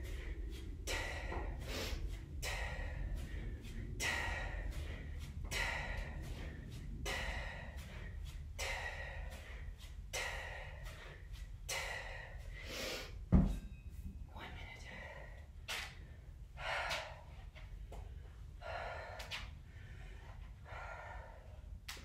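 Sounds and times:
sharp forceful breaths: 0.0s - 13.3s
kettlebell thud on floor: 13.3s - 13.7s.

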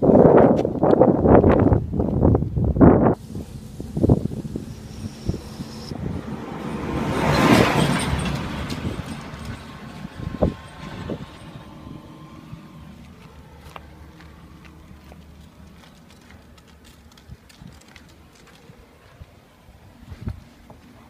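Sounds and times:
car driving past: 3.2s - 15.8s.

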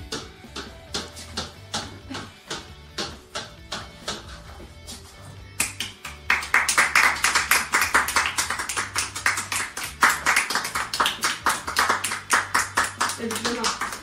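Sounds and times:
people clapping: 5.6s - 14.0s.

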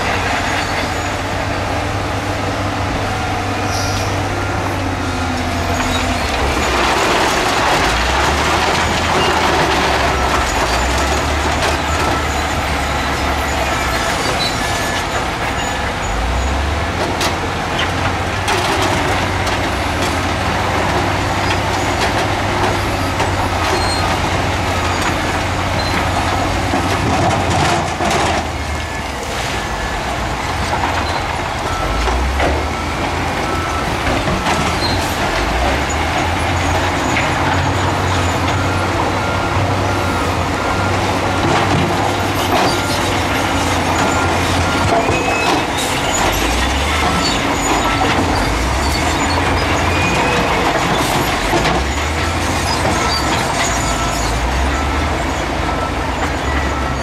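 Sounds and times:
heavy machinery engines running: 0.0s - 57.0s
reversing alarm beeping: 22.6s - 57.0s.

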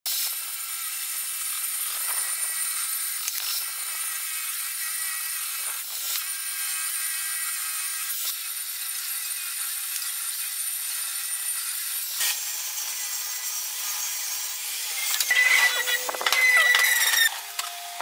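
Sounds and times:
table saw cutting wood: 0.1s - 18.0s.

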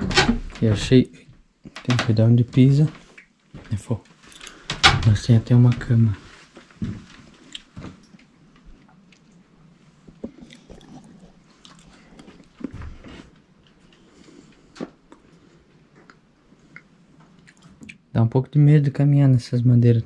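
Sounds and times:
floorboards creaking: 0.0s - 8.0s
footsteps on wooden floorboards: 5.4s - 8.0s.

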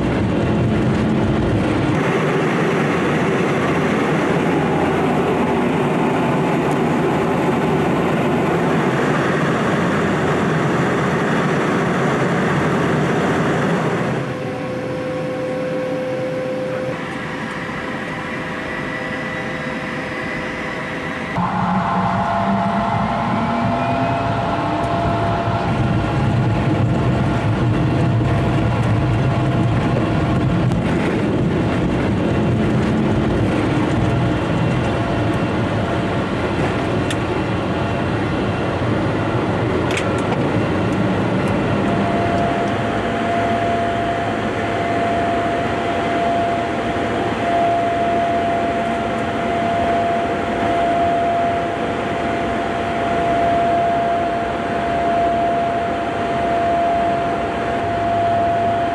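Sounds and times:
jet engine and airflow noise: 0.0s - 58.9s
steady high tone: 13.7s - 28.0s, 41.2s - 58.9s.

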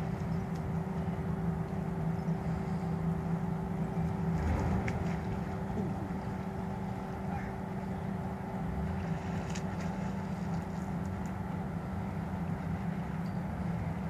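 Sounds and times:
constant tone: 0.0s - 14.0s
low engine hum: 0.0s - 14.0s.

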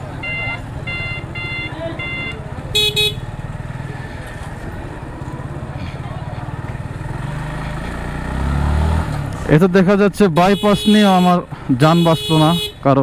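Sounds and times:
motorcycle engine running: 0.0s - 10.9s
vehicle horn blasts: 0.2s - 3.4s, 10.4s - 12.8s.

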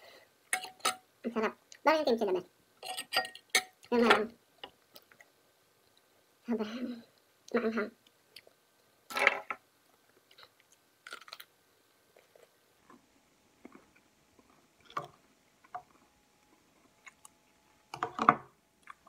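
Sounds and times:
person chewing cucumber crunches: 10.2s - 11.5s.

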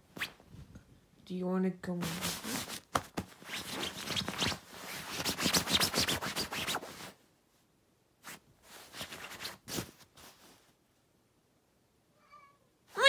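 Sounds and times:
fabric rustling and crinkling: 2.0s - 7.2s, 8.2s - 10.8s.

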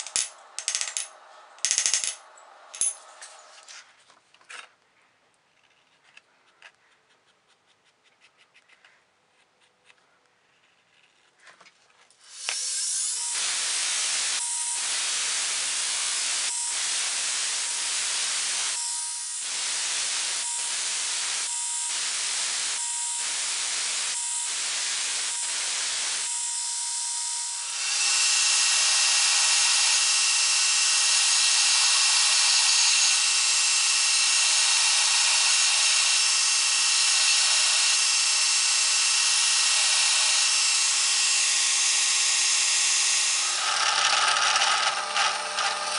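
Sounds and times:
grinder belt whine: 0.0s - 3.6s, 12.3s - 45.9s
belt grinder grinding steel: 12.3s - 45.9s.

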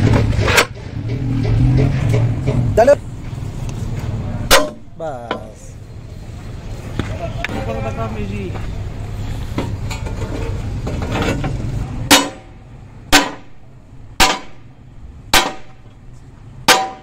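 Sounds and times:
hammer striking steel frame: 0.0s - 3.0s, 4.4s - 5.6s, 12.0s - 14.7s, 15.3s - 16.0s, 16.6s - 17.0s
low steady rumble: 0.0s - 17.0s.

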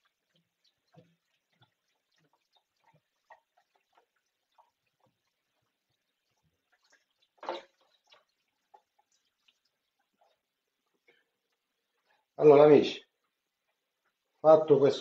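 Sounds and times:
thin stream from tap: 0.0s - 12.4s
water dripping and splashing in sink: 0.0s - 12.4s, 13.0s - 14.5s.

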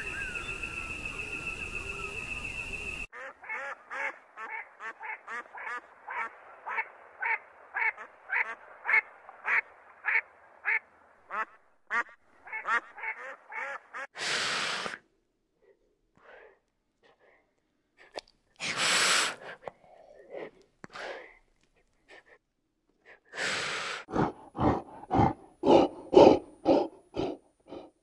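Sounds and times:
ducks calling: 3.2s - 14.1s
burst of hiss-like noise: 14.2s - 15.0s, 18.6s - 19.5s.

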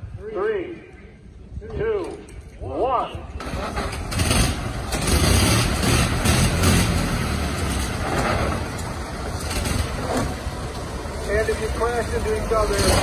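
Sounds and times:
old car engines rumbling: 3.3s - 13.0s.

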